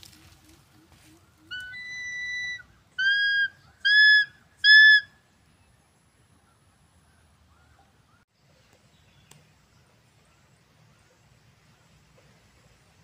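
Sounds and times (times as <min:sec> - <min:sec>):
eagle whistled calls: 0:01.4 - 0:05.1.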